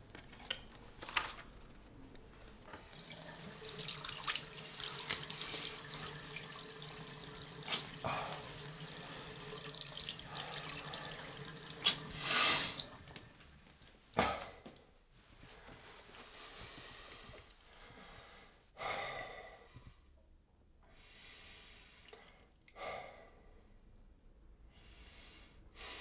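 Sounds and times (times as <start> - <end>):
water splashing on face: 2.9 - 13.2.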